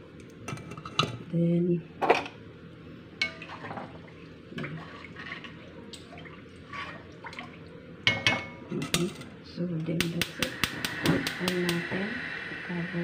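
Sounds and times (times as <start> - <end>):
water sloshing: 3.4 - 7.7.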